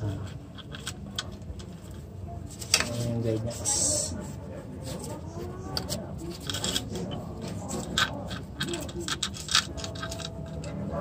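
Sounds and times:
light metallic clicks and scrapes: 4.8 - 10.9.

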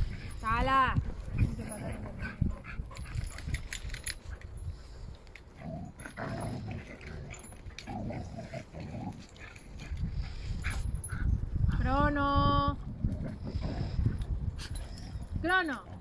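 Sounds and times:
dogs growling: 1.2 - 3.8, 5.4 - 11.3, 12.9 - 16.0.

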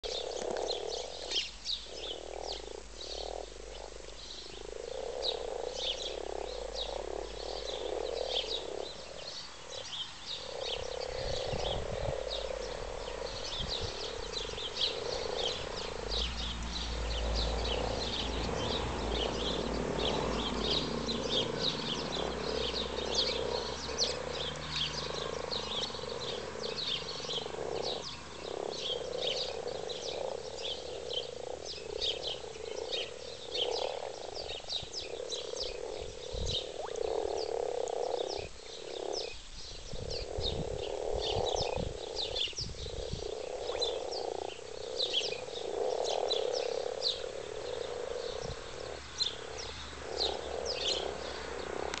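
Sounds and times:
frogs croaking in chorus: 0.0 - 52.0.

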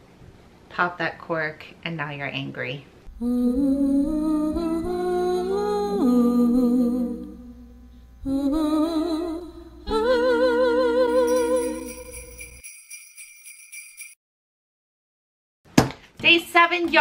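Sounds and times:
voice singing with vibrato: 3.1 - 12.3
small bells jingling: 11.1 - 14.2.

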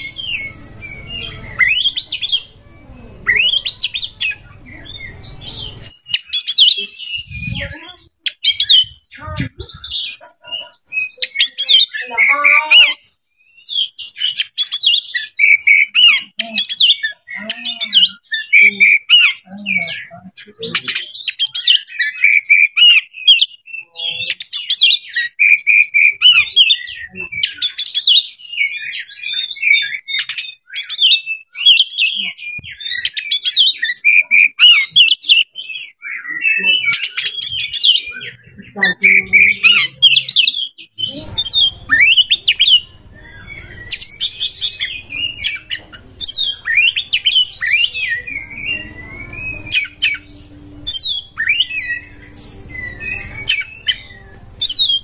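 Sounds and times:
songbird whistles and trills: 20.6 - 55.0.

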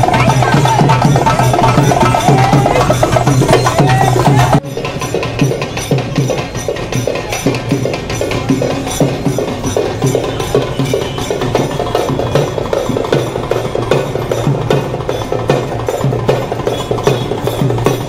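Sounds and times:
drum beats: 0.0 - 18.0.

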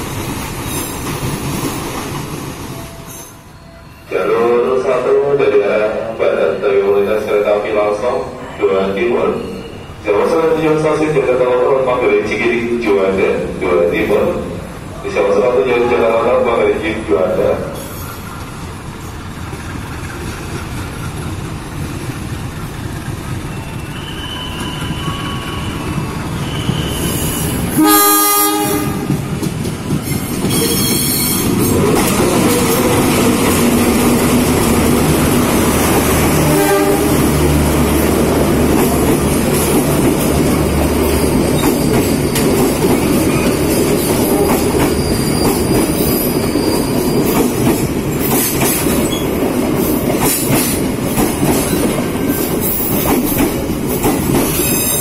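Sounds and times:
coaches rolling on rails: 0.0 - 55.0
locomotive engine rumbling: 11.5 - 54.7
train horn blast: 27.7 - 29.1, 36.3 - 37.4.

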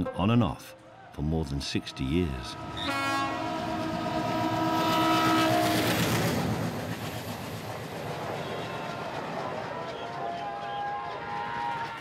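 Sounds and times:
locomotive horn blast: 1.6 - 6.3
train coaches rushing and rattling: 2.8 - 12.0.

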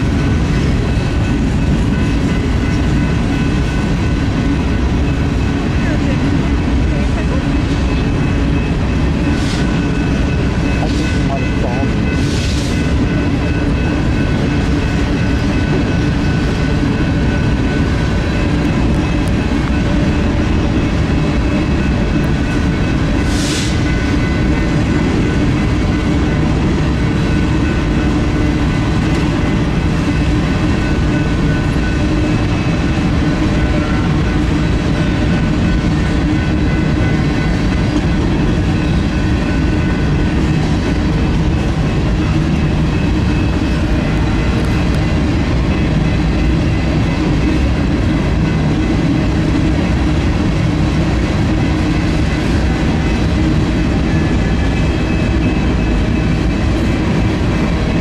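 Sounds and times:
train wheels clattering on rail: 0.0 - 58.0.

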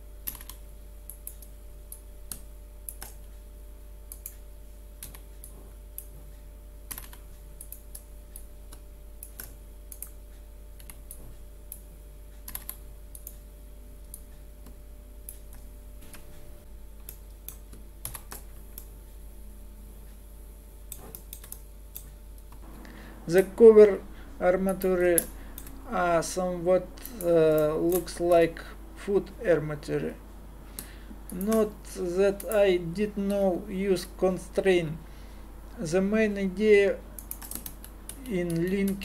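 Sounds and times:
low electrical hum: 0.0 - 39.0
computer keyboard keystrokes: 0.2 - 3.2, 5.0 - 6.1, 6.9 - 10.2, 12.4 - 13.4, 17.0 - 18.9, 20.9 - 22.6, 37.2 - 39.0.

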